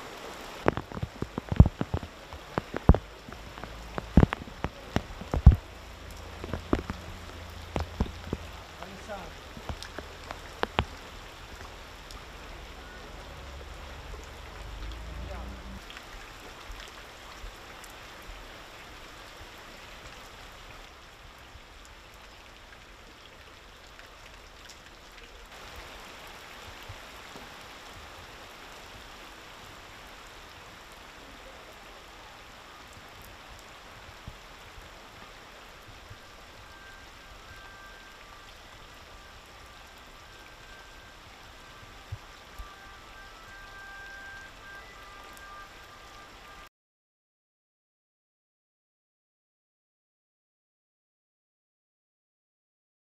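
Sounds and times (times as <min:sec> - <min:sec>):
heavy rain hissing: 0:00.0 - 0:24.3, 0:25.3 - 0:46.7.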